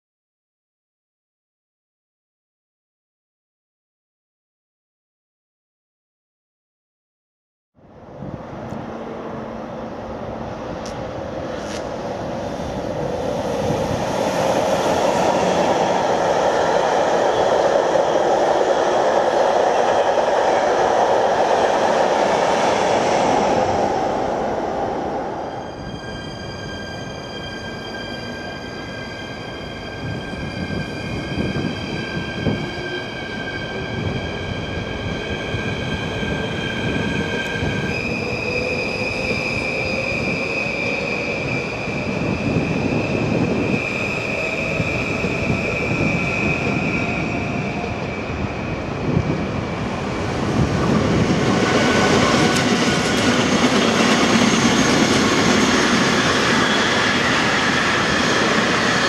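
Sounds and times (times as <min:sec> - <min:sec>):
freight train rolling past: 0:08.0 - 0:59.0
train wheels squealing: 0:11.5 - 0:20.1, 0:21.9 - 0:59.0.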